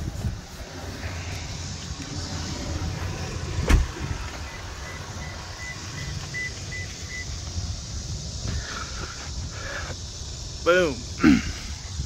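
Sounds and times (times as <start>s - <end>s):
steady low rumble: 0.0s - 12.0s
truck door slamming shut: 3.6s - 4.2s
faint high beeps: 4.4s - 7.4s.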